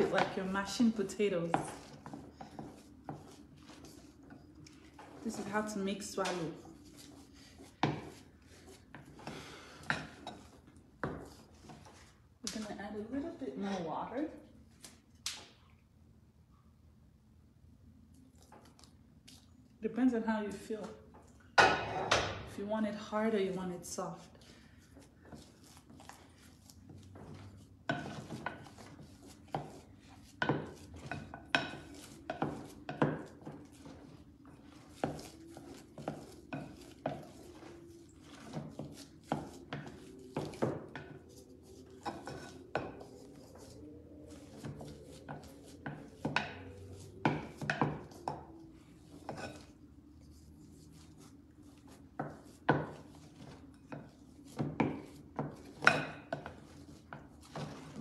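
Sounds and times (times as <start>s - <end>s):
spoon scraping a pot: 0.0s - 12.2s, 24.4s - 58.0s.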